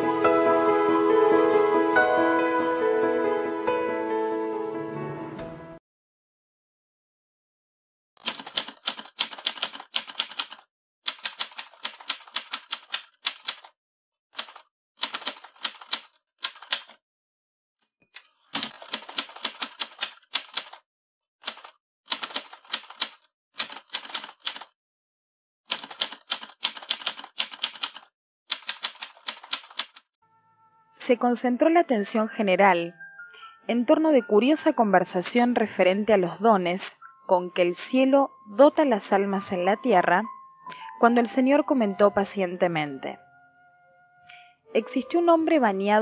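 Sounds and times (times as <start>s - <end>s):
typewriter keys clacking: 8.2s - 13.7s, 14.4s - 17.0s, 18.2s - 20.8s, 21.4s - 24.7s, 25.7s - 30.0s.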